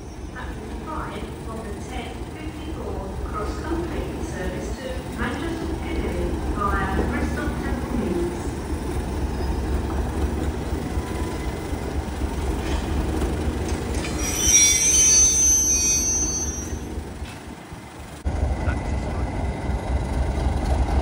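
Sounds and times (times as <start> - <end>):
train wheels squealing: 0.0 - 0.4, 9.2 - 10.0, 13.8 - 17.4
diesel locomotive engine rumbling: 0.0 - 21.0.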